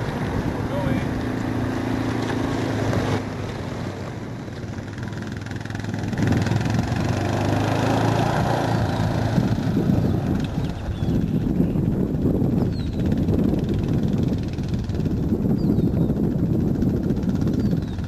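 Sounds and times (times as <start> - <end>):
utility vehicle engine running: 0.0 - 18.0.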